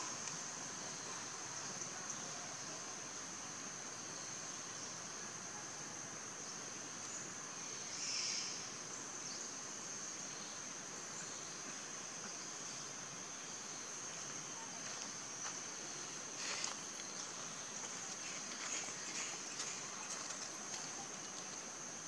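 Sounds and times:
insects droning: 0:00.0 - 0:22.0
loud insect call: 0:00.0 - 0:22.0.

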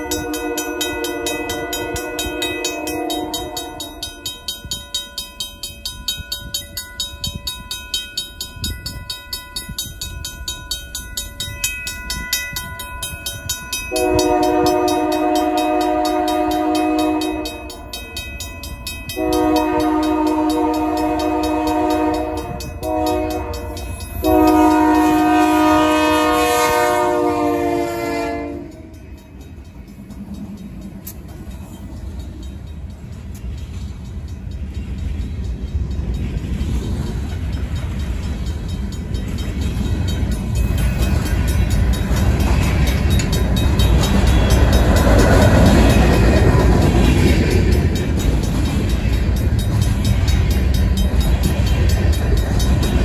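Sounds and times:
locomotive air horn blasts: 0:00.0 - 0:04.1, 0:13.9 - 0:17.8, 0:19.2 - 0:29.0
mechanical crossing bell ringing: 0:00.0 - 0:25.4, 0:28.4 - 0:53.0
locomotive engine and wheels passing: 0:00.0 - 0:53.0.

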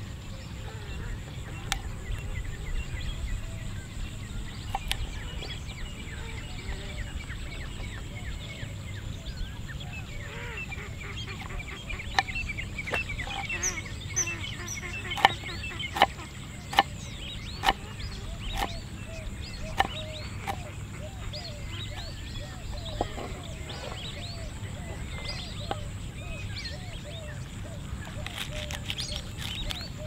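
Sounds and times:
birds chirping: 0:00.0 - 0:30.0
knife chopping on wooden board: 0:15.2 - 0:15.4, 0:16.0 - 0:16.9, 0:17.6 - 0:17.8, 0:18.5 - 0:18.8, 0:19.7 - 0:20.6.

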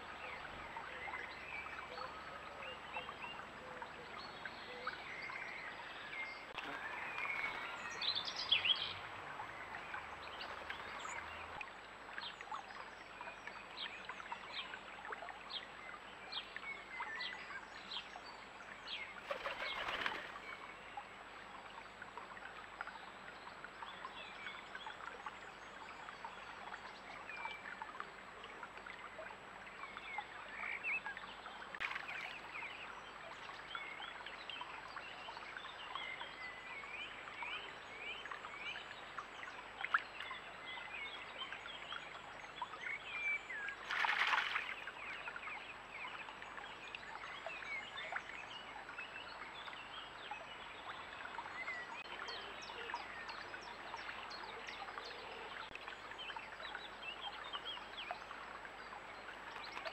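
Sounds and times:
shallow stream running: 0:00.0 - 0:59.9
songbird chirps: 0:00.0 - 0:59.9
pigeon splashing in water: 0:19.2 - 0:20.5, 0:43.8 - 0:44.9.

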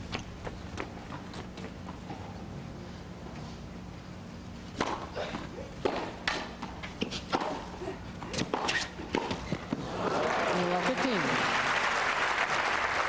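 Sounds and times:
tennis ball struck by rackets: 0:04.8 - 0:05.2, 0:05.8 - 0:07.7, 0:08.3 - 0:09.8.

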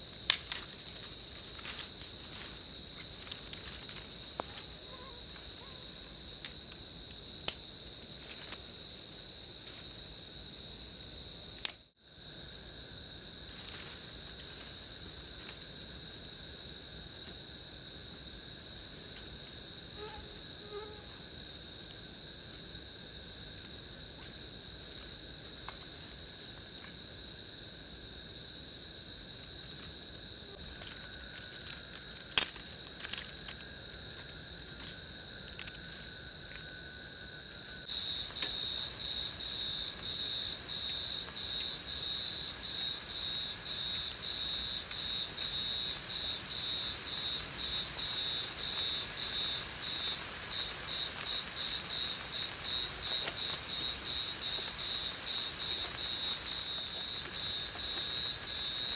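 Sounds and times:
insects chirring high pitch: 0:00.0 - 0:58.9
lower insect tone: 0:00.0 - 0:58.9
dry twigs snapping: 0:00.1 - 0:04.8, 0:11.6 - 0:11.8, 0:30.6 - 0:36.2.

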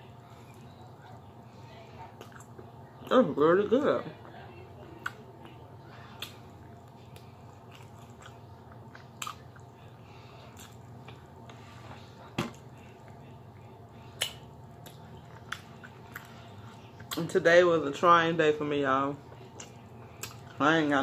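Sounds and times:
steady low hum: 0:00.0 - 0:21.0
person chewing and smacking: 0:02.2 - 0:02.7, 0:06.2 - 0:11.6, 0:14.1 - 0:17.4, 0:19.3 - 0:20.6.

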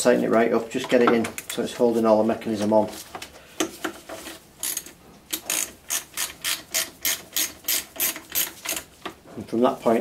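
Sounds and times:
socket ratchet clicking: 0:04.6 - 0:08.9.

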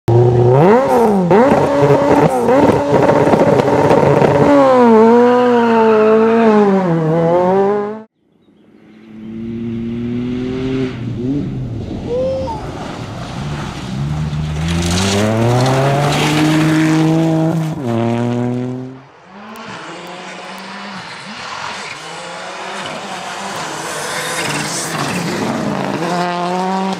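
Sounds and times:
rally car engines revving: 0:00.1 - 0:08.1, 0:09.0 - 0:26.9.

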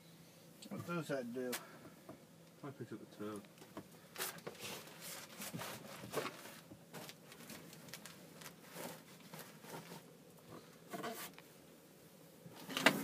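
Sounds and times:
rustling and scuffing: 0:04.0 - 0:10.2.

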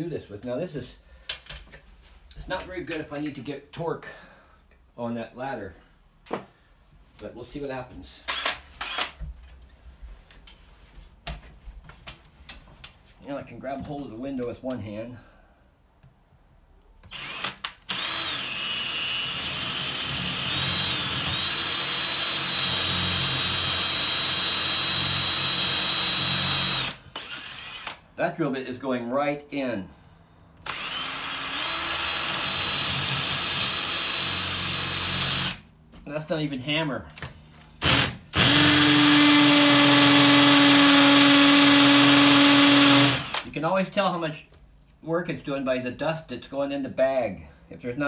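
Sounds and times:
drill boring into concrete: 0:08.3 - 0:09.2, 0:17.1 - 0:28.0, 0:30.7 - 0:35.6, 0:37.8 - 0:43.5.

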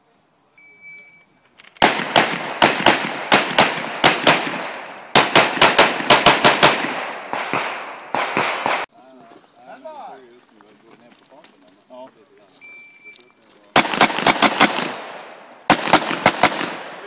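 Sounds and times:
rapid pistol shots: 0:01.8 - 0:08.9, 0:13.8 - 0:17.0.

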